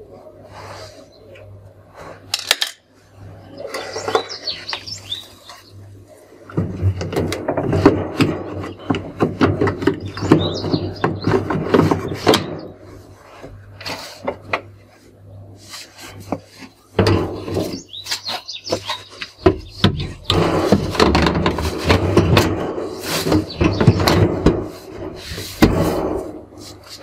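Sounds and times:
plastic rubbing and clattering: 6.5s - 14.9s, 15.6s - 27.0s.

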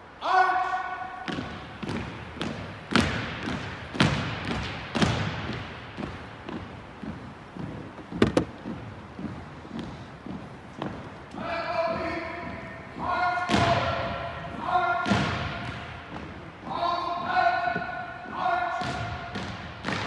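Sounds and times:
heavy foot stamps: 1.3s - 12.7s
marching steps on wooden floor: 1.3s - 20.0s.

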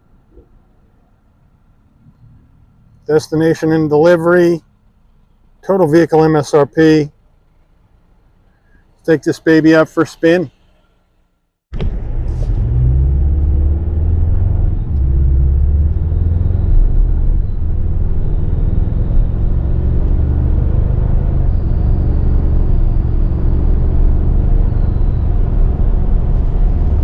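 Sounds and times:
tyre and road rumble: 11.7s - 27.0s
car engine running: 11.8s - 27.0s.

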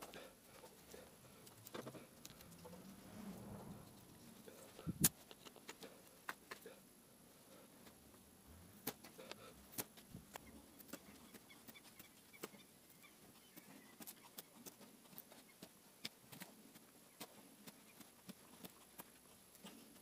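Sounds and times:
knife carving wood: 5.0s - 6.6s.

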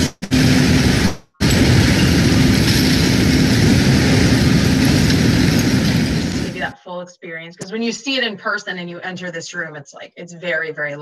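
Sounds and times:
heavy machinery engines running: 0.3s - 6.7s.

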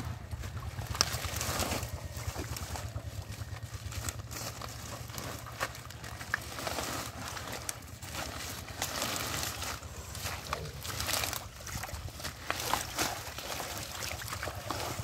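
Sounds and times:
low rumble: 0.0s - 15.0s
wet rustling and crackling: 0.0s - 15.0s
small splashes: 5.2s - 15.0s.

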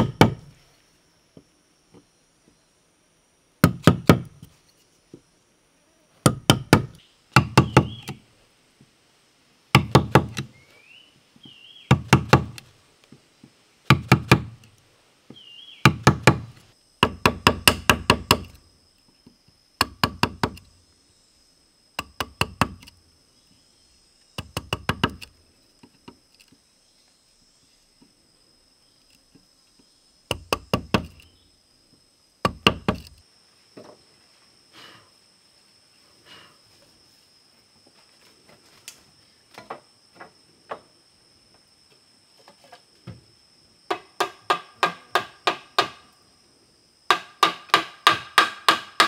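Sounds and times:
hard knocks: 11.9s - 12.6s.

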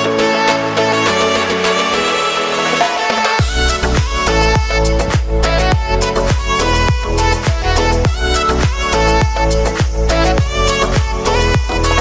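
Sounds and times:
background music: 0.0s - 12.0s
deep falling-pitch kick drums: 3.4s - 11.8s.

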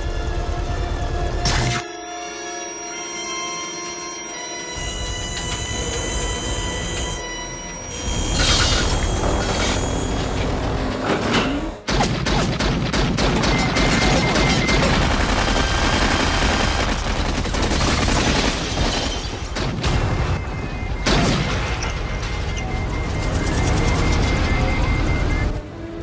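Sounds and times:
machine gun firing in bursts: 11.9s - 20.3s
helicopter noise: 13.3s - 18.4s, 19.9s - 26.0s.

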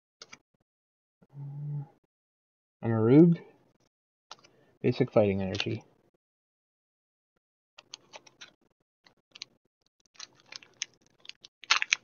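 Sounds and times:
foil wrapper crackling: 9.4s - 12.0s.

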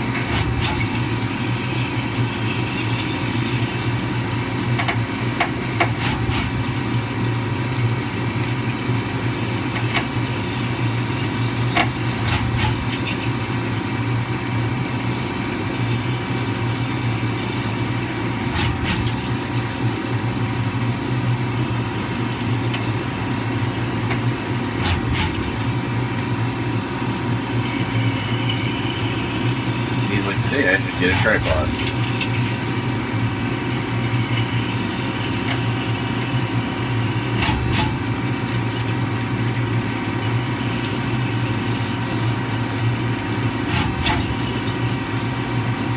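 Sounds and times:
coolant hissing: 0.0s - 45.9s.

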